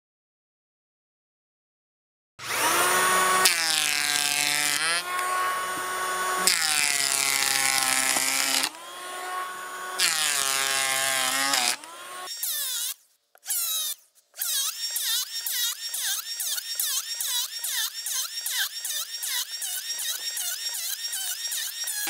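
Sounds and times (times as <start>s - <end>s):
electric planer cutting wood: 2.4s - 13.0s, 14.5s - 22.0s.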